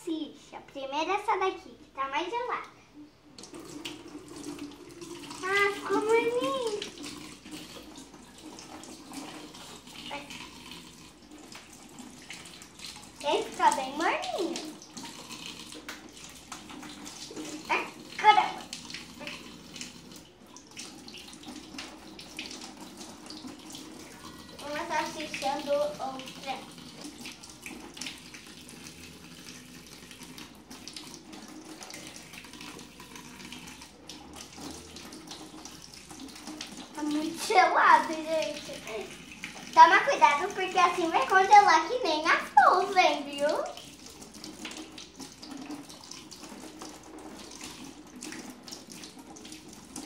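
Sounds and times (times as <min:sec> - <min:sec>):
water splashing: 0:03.4 - 0:50.0.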